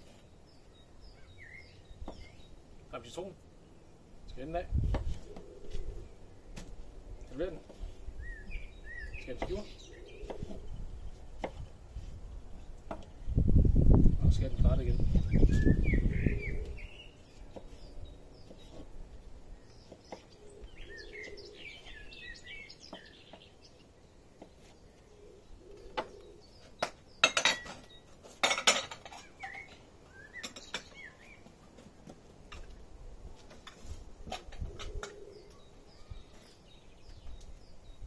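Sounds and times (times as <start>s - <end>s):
birds chirping: 0.0s - 38.0s
dishes and utensils clinking: 27.2s - 29.8s.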